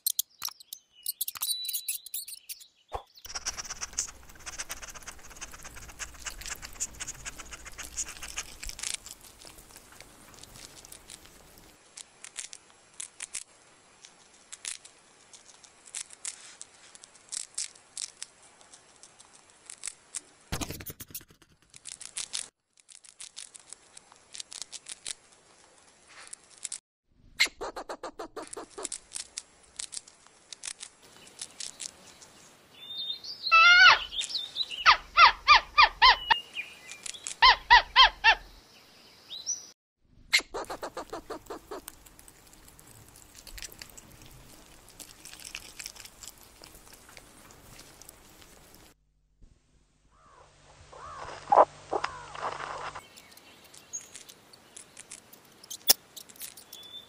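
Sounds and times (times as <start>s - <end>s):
squirrel chirping: 0.0s - 11.7s, 32.8s - 38.6s, 40.3s - 43.9s, 53.0s - 57.0s
chipmunk gnawing peanuts: 3.2s - 26.8s, 27.7s - 32.1s, 40.4s - 49.0s, 51.0s - 57.0s.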